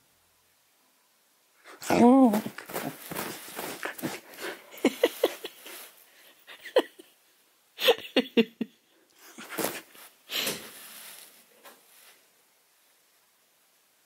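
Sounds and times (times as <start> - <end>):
puppy grunting and huffing: 1.7 - 5.8.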